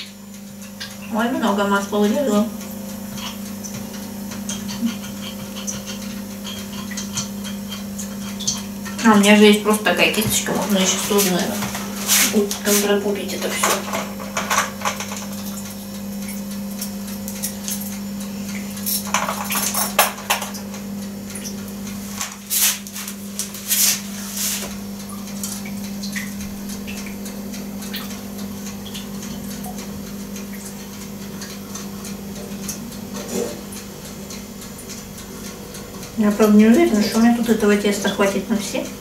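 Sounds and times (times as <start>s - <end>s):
steady low hum: 0.0s - 39.0s
baking tin knocking and clattering: 19.1s - 20.6s.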